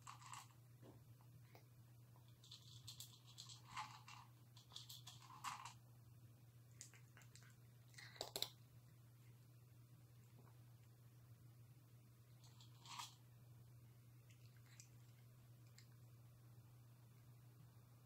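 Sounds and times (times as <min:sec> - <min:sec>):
cat crunching dry kibble: 0:00.0 - 0:00.6, 0:02.3 - 0:05.8, 0:06.7 - 0:09.0, 0:12.3 - 0:13.2
low steady hum: 0:00.0 - 0:18.0.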